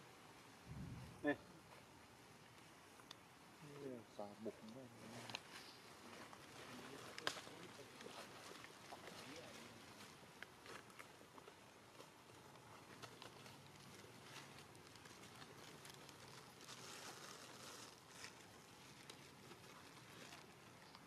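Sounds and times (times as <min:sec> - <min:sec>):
small clicks and rustles: 0:04.6 - 0:21.0.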